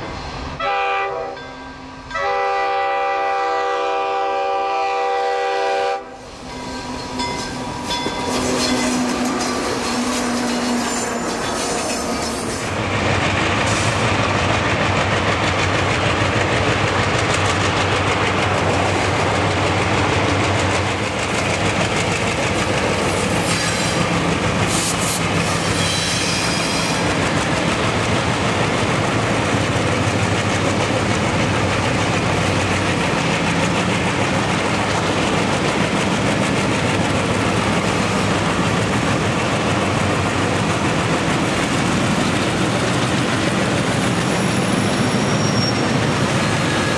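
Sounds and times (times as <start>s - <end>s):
train rumble and clatter: 0.0s - 46.9s
high squeal: 6.4s - 12.8s, 24.7s - 27.1s, 44.2s - 46.9s.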